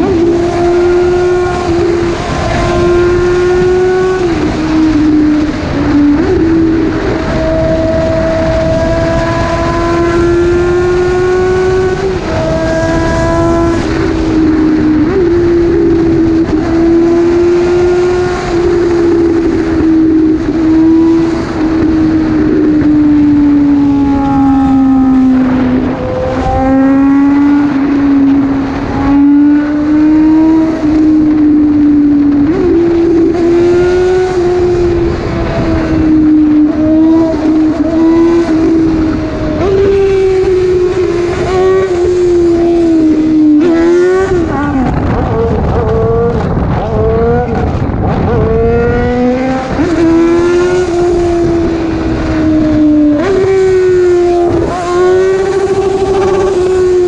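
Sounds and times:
motorcycle engine at high revs: 0.0s - 57.0s
wind rushing over microphone: 0.0s - 57.0s.

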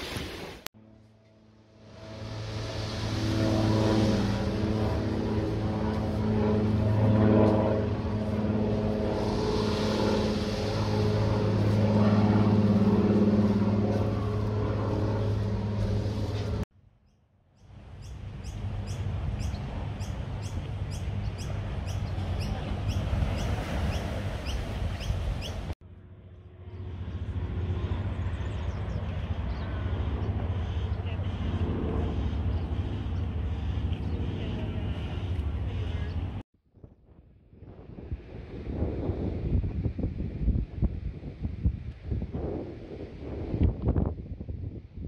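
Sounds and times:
engine drone: 0.8s - 16.6s, 17.6s - 36.4s.

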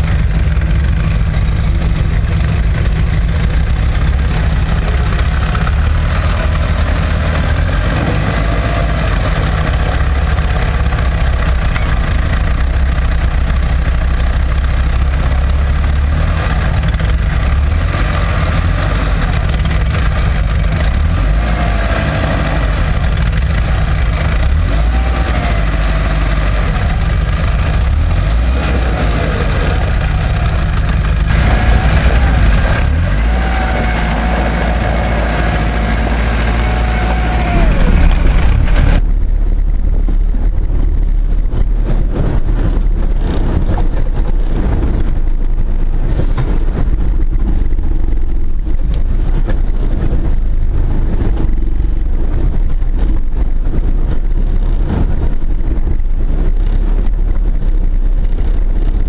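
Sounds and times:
engine revving with whine: 0.0s - 59.0s
vehicle rumbling over rough ground: 0.0s - 59.0s
knocks and jolts: 15.2s - 39.4s.

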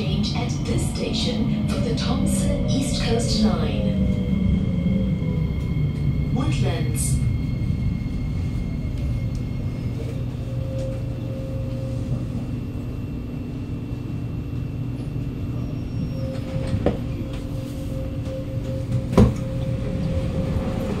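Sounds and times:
train braking rumble: 0.0s - 21.0s
train doors knocking open: 18.9s - 19.6s.

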